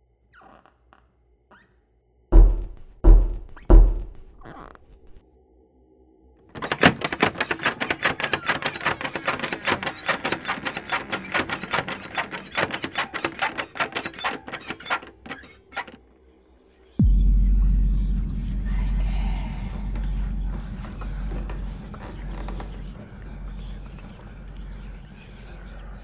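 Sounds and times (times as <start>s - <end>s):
loud low boom: 17.0s - 23.8s.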